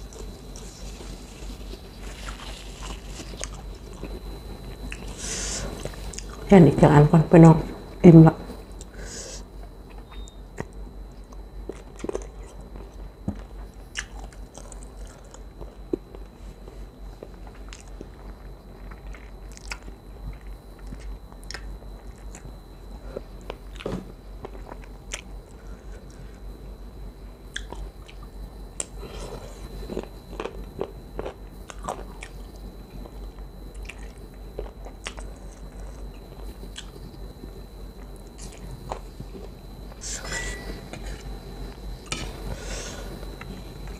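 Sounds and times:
person chewing crunchy food: 0.0s - 6.5s, 9.6s - 26.3s, 27.5s - 37.2s
faint high-pitched whine: 0.0s - 43.9s.

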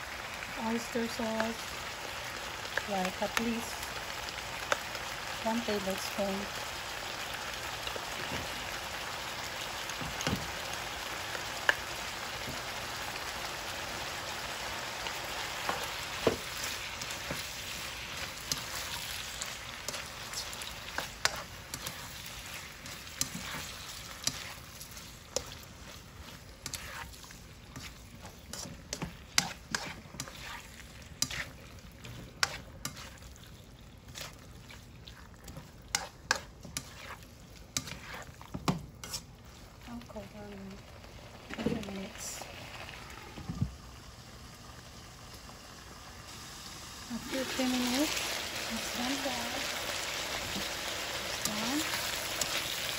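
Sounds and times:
stir-frying sizzle: 0.0s - 52.9s
spatula tapping and scraping pan: 19.8s - 22.2s, 22.8s - 24.6s, 26.6s - 30.6s, 31.2s - 33.2s, 35.5s - 39.3s.

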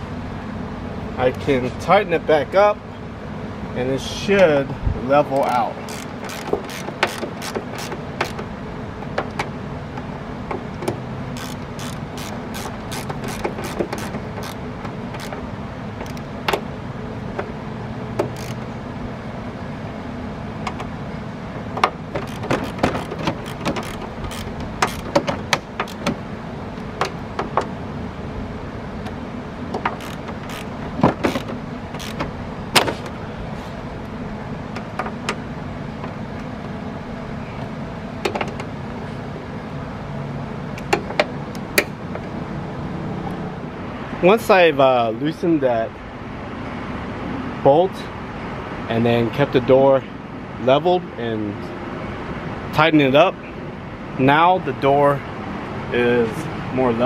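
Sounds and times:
ratchet wrench clicking: 5.4s - 8.4s, 11.4s - 15.4s, 18.2s - 18.7s, 22.2s - 25.2s, 25.8s - 26.1s, 29.8s - 32.2s.

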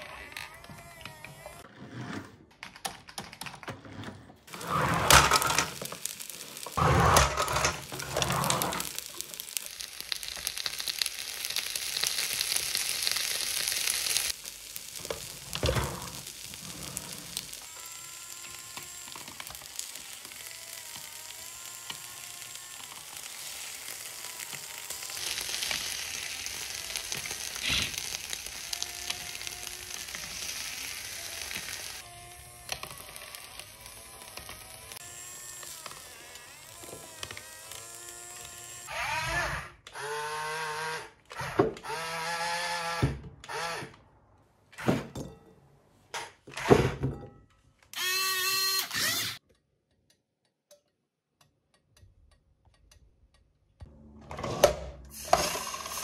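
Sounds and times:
rice sizzling on griddle: 4.5s - 38.9s, 55.2s - 56.0s.

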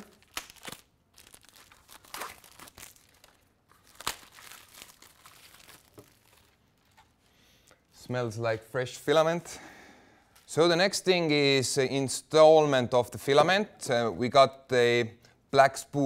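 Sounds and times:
plastic wrapping crinkling and tearing: 0.0s - 7.3s.

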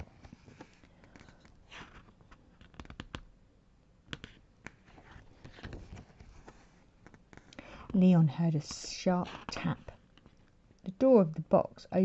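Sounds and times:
book handling clicks and taps: 0.1s - 3.3s, 4.1s - 8.0s.

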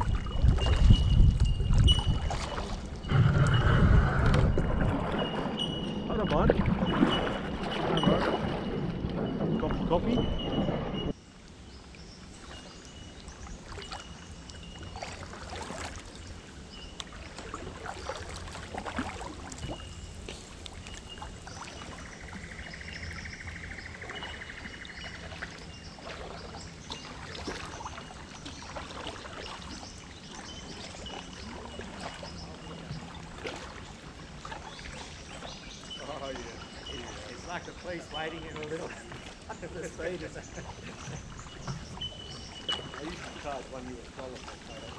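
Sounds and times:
kayak paddle splashing: 0.0s - 11.2s, 12.1s - 44.9s
thin high call: 42.0s - 43.6s.

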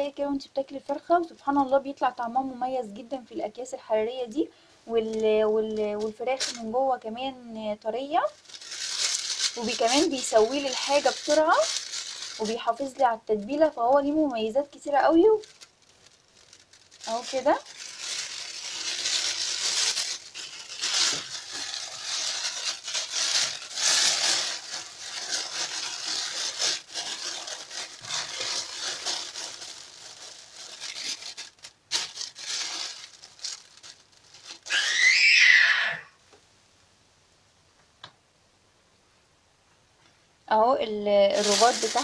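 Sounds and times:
plastic bag crinkling: 4.9s - 7.0s, 7.9s - 35.2s, 41.2s - 42.0s.

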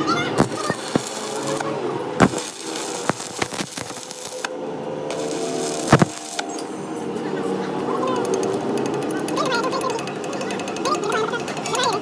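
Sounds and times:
welding arc crackling hiss: 0.4s - 4.5s, 5.1s - 6.7s
welding arc pops: 0.4s - 4.5s, 5.1s - 6.6s.

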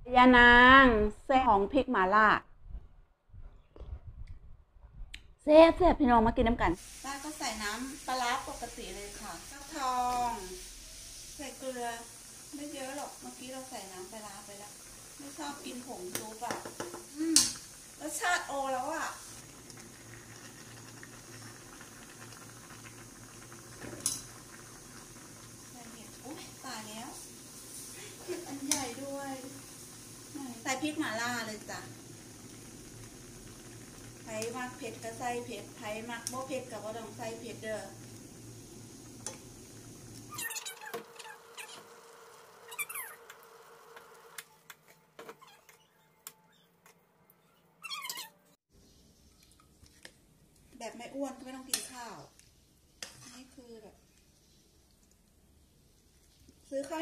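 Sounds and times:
broth simmering with pops: 6.5s - 46.4s, 48.8s - 57.0s
curry bubbling in pan: 6.8s - 44.4s.

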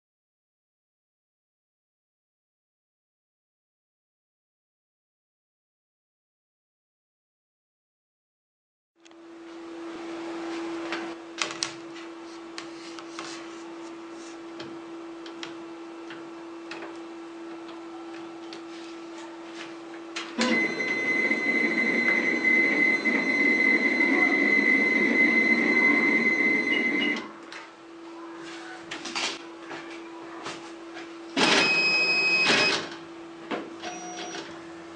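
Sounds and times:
printer humming: 19.9s - 27.6s
printer tray motor whirring: 20.2s - 27.5s.

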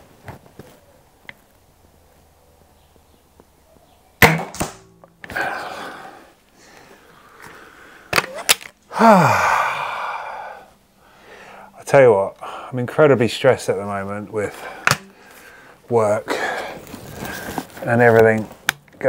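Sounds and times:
air rifle shot: 4.2s - 4.9s
rifle barrel scraping: 16.7s - 18.7s.

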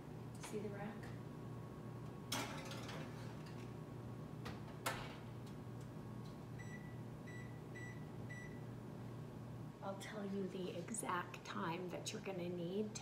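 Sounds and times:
oven control panel beeps: 6.6s - 8.6s.

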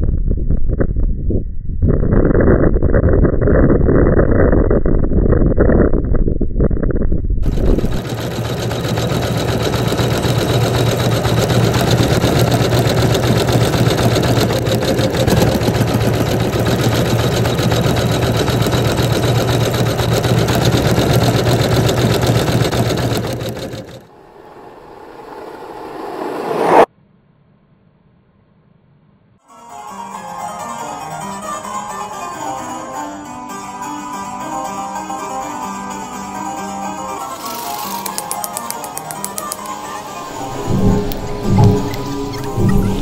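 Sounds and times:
sewing machine running fast: 7.4s - 24.1s, 37.3s - 43.0s.

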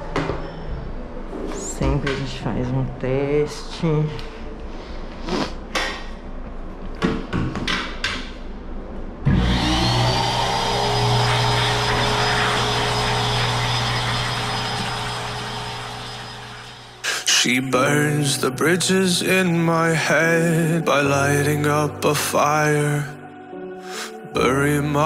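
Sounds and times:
pet grooming blower whine: 9.3s - 17.0s.

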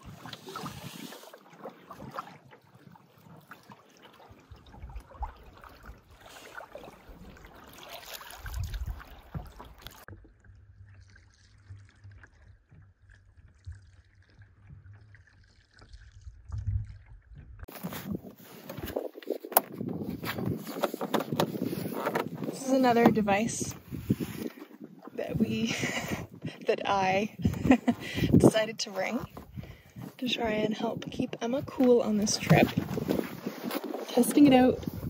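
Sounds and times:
paddle strokes: 0.0s - 10.1s, 17.7s - 35.0s
water trickling and gurgling: 0.0s - 35.0s.

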